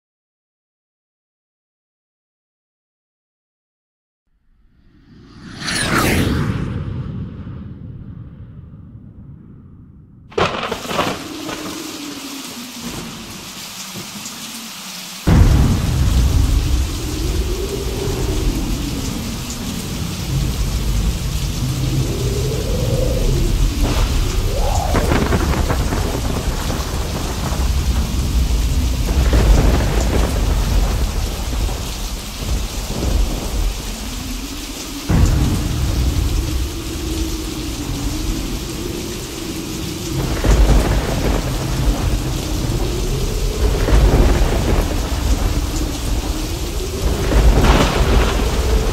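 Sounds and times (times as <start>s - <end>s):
low sliding tone: 4.9s - 8.2s
rolling thunder: 5.2s - 14.1s, 15.2s - 48.9s
loud thunderclap: 10.2s - 13.5s, 15.3s - 48.9s
heavy rain: 10.3s - 48.9s.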